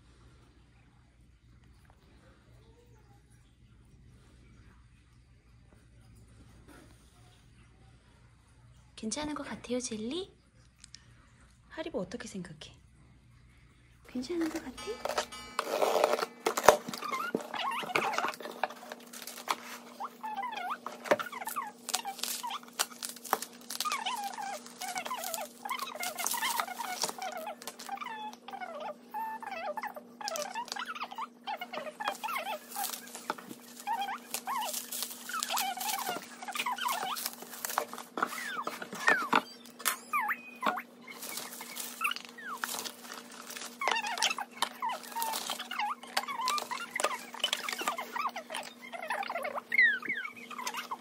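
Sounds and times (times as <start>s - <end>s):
faint steady hum: 0.0s - 51.0s
bubble wrap and cardboard crinkling: 14.1s - 51.0s.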